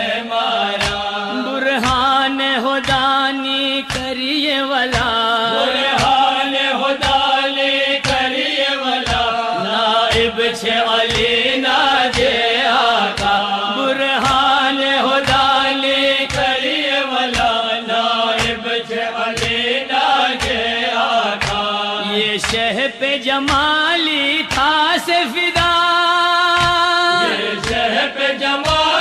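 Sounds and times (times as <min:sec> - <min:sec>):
person chanting melodically: 0:00.0 - 0:29.0
steady percussive beat: 0:00.8 - 0:01.2, 0:07.0 - 0:07.3, 0:09.0 - 0:13.5, 0:18.3 - 0:21.8, 0:25.6 - 0:25.9, 0:26.5 - 0:29.0.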